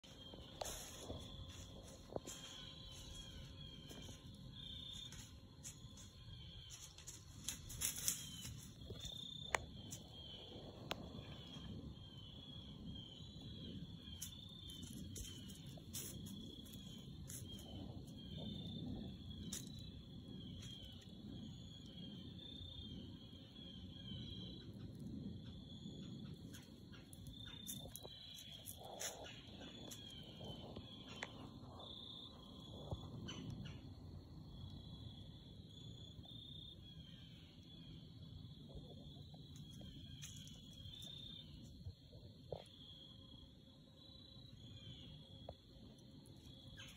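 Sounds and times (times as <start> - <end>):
low uneven rustle: 0.0 - 4.5
crickets chirping: 0.0 - 46.9.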